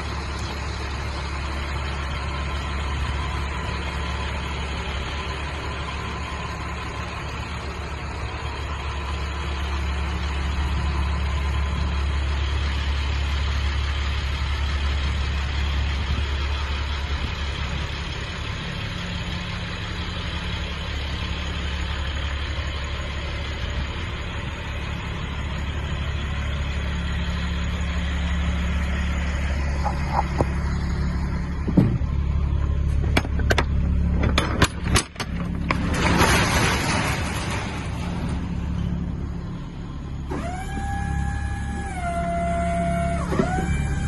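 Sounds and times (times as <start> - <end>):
diesel engine idling: 0.0 - 44.0
sharp metal clanks and knocks: 33.0 - 38.5.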